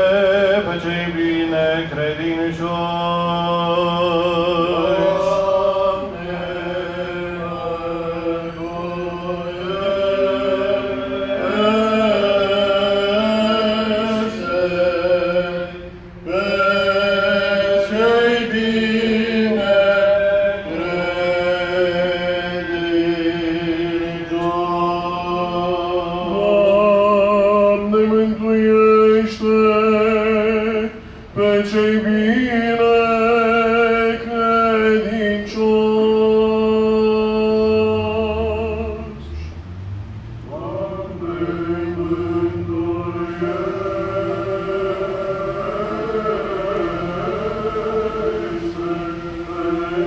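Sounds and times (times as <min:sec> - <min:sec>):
voices chanting: 0:00.0 - 0:50.0
low drone note: 0:03.8 - 0:26.4.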